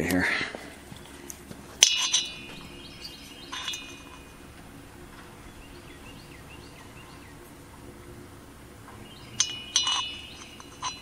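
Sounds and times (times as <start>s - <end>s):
metal part clinking and ringing: 1.8s - 4.4s, 9.3s - 11.0s.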